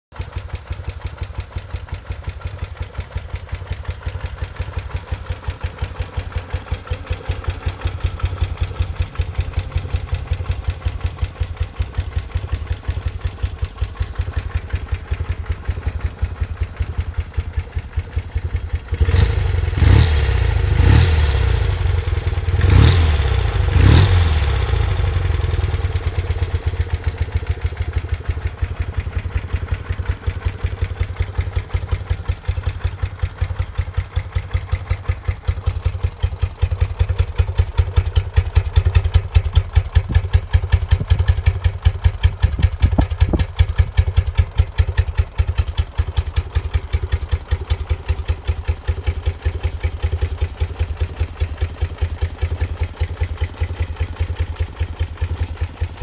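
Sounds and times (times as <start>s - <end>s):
motorcycle engine idling: 0.2s - 56.0s
motorcycle throttle blips: 38.2s - 44.5s.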